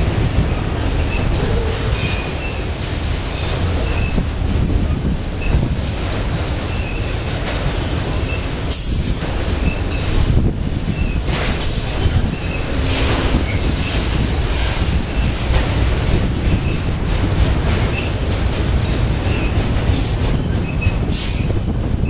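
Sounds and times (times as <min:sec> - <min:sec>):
train wheels rumbling on track: 0:00.0 - 0:22.0
wheels clacking over rail joints: 0:00.0 - 0:22.0
wheel squeals: 0:09.4 - 0:10.1, 0:10.9 - 0:14.0, 0:15.0 - 0:15.4.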